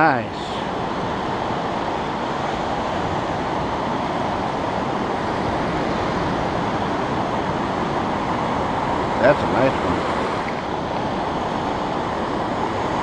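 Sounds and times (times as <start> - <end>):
ocean surf rushing: 0.0 - 13.0.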